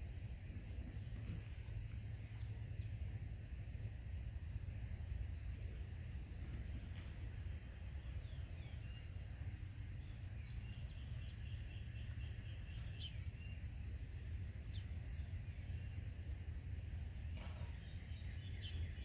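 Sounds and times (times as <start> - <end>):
distant bird calls: 4.3 - 19.0.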